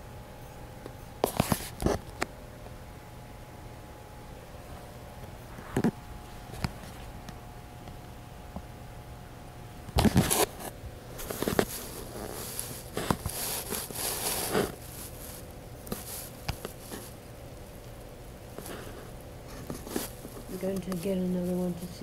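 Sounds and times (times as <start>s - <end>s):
scraping and rustling: 10.0s - 17.2s, 18.5s - 22.0s.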